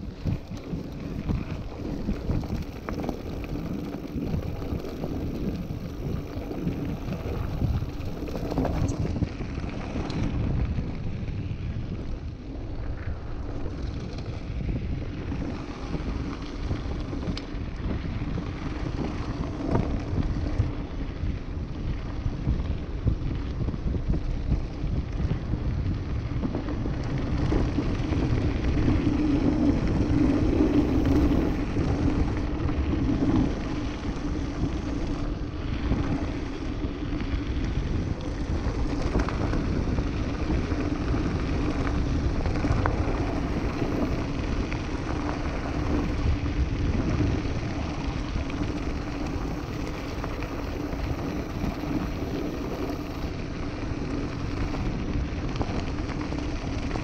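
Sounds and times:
bike tyres rumbling on gravel: 0.0 - 57.0
steady hum: 48.1 - 54.8.

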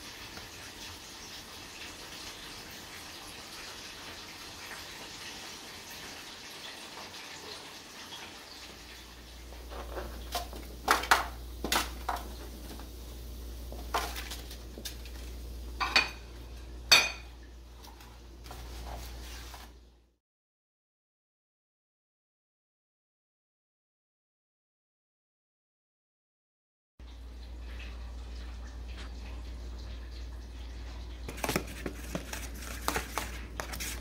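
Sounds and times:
vegetables clattering into metal pan: 9.7 - 12.6, 13.8 - 15.1.

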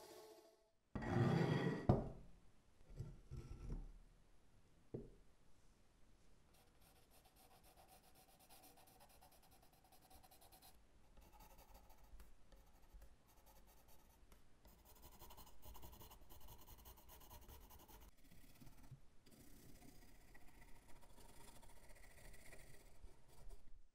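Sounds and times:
pencil scratching on wood: 6.6 - 23.8.

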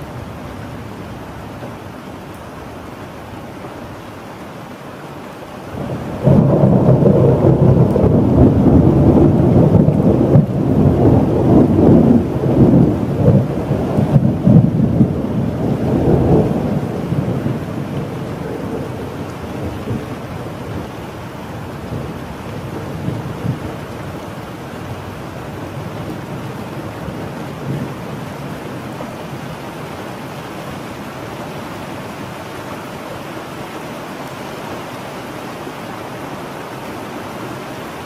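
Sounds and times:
steady rain: 0.0 - 38.0
thunder rumbling: 5.7 - 32.4.

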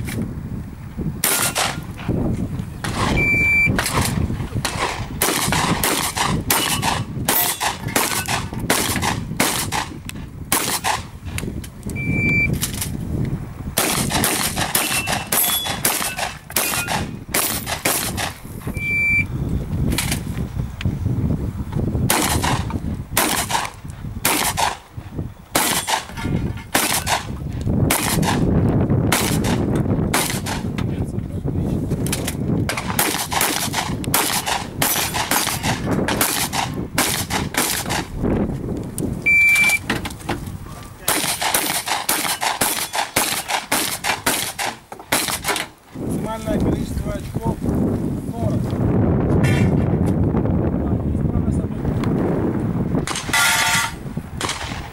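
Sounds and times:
shotgun blasts: 1.2 - 1.8, 2.8 - 3.2, 3.8 - 11.1, 13.8 - 18.4, 22.0 - 24.8, 25.5 - 27.3, 27.9 - 28.5, 29.1 - 30.7, 32.7 - 38.1, 41.0 - 45.7, 53.0 - 54.9
high beeps: 3.2 - 3.8, 12.0 - 12.6, 18.7 - 19.3, 39.3 - 39.8.

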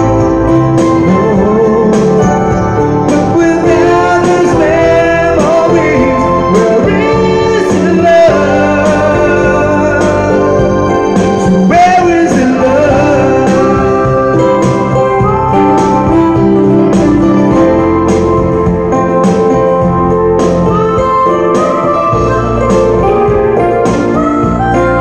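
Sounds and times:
electronic keyboard chords: 0.0 - 25.0
man singing into a microphone: 1.0 - 15.3.

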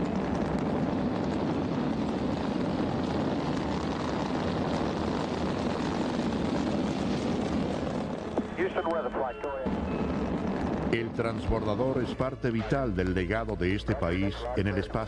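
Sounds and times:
rocket engines rumbling: 0.0 - 15.0.

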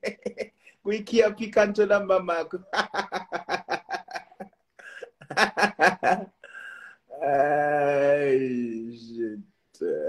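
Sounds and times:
man laughing hard: 0.0 - 0.5, 2.6 - 6.4.

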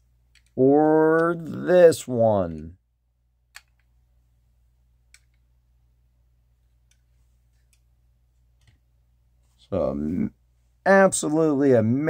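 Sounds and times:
faint clicks of model handled: 0.3 - 0.6, 6.6 - 7.9.

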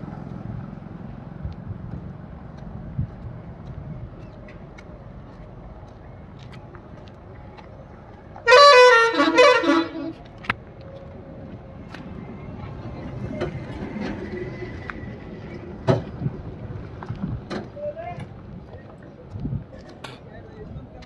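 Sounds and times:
street traffic hum: 0.0 - 21.0
vehicle horn honking: 8.4 - 10.2.

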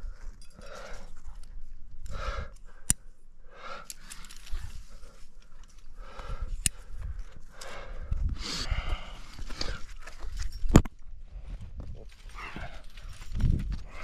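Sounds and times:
person breathing hard: 0.0 - 1.3, 2.0 - 10.0.

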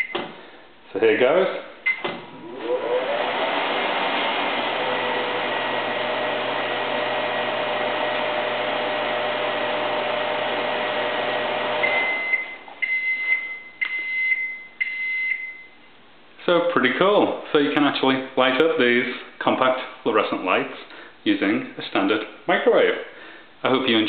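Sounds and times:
microwave oven humming: 2.1 - 12.8
microwave short high beeps: 11.8 - 15.8.

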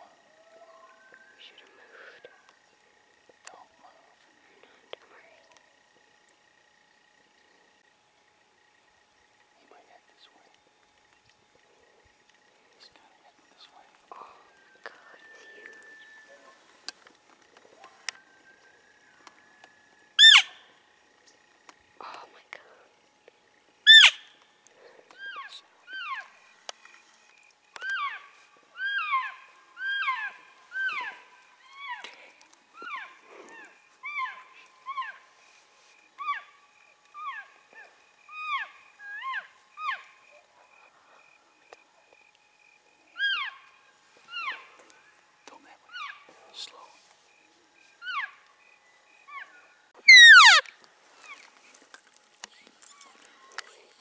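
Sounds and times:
elk mewing calls: 20.2 - 20.6, 23.9 - 24.2, 49.4 - 50.7
elk bugling: 20.2 - 20.7, 23.9 - 24.2, 27.8 - 35.3, 49.3 - 50.7.

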